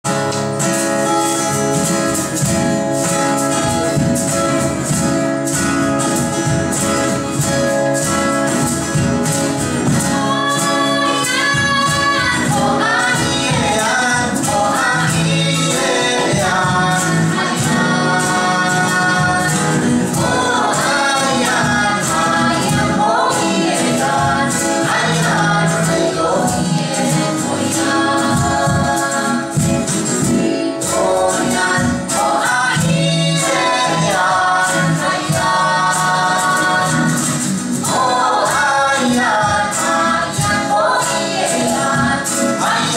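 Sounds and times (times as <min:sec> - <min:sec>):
acoustic guitar strumming: 0:00.1 - 0:42.9
man and woman singing: 0:09.9 - 0:42.9.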